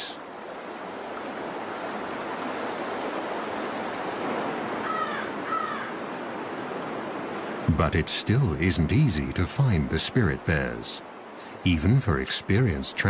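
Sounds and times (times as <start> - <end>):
stream water rushing: 0.0 - 13.0
bird calls: 12.0 - 12.8.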